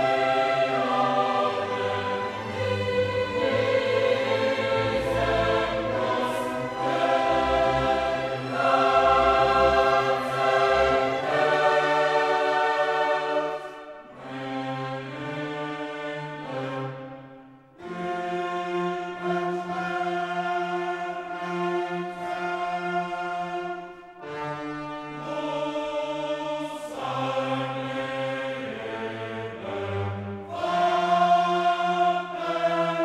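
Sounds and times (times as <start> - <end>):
choir singing with orchestra: 0.0 - 33.0.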